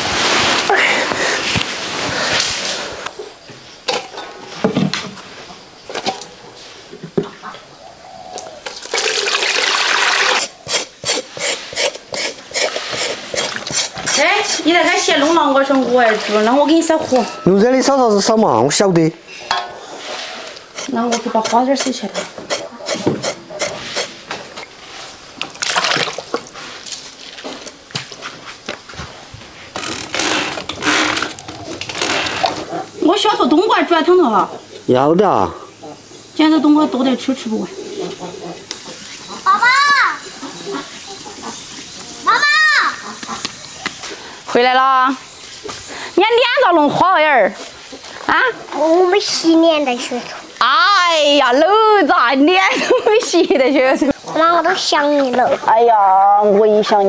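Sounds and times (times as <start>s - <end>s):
water pouring and splashing: 8.6s - 14.2s, 15.5s - 16.9s, 24.5s - 28.2s.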